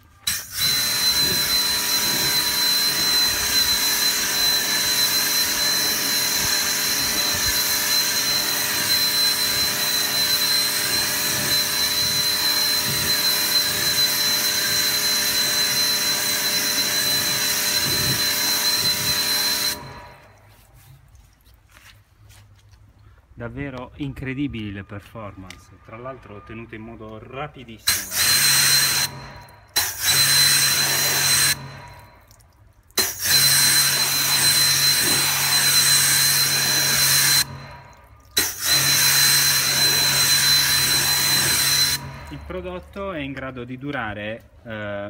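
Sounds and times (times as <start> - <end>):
pressure washer spraying water: 0.2 - 20.9, 27.9 - 32.0, 33.0 - 37.6, 38.3 - 42.3.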